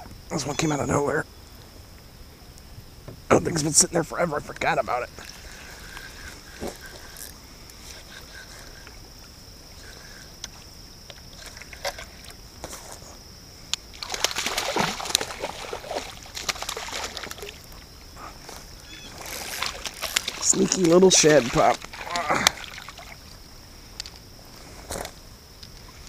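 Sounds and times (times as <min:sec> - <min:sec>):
fish splashing at water surface: 0:13.9 - 0:17.7, 0:19.2 - 0:23.3.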